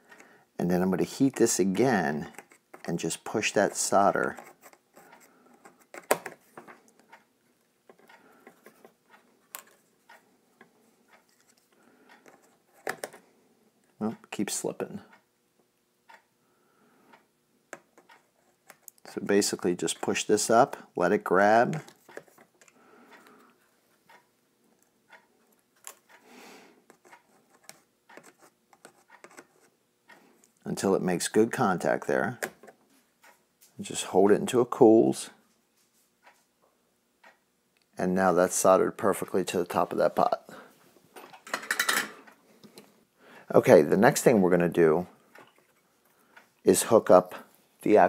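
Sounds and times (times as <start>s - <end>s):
tools clicking and tapping on metal: 41.2s - 42.9s.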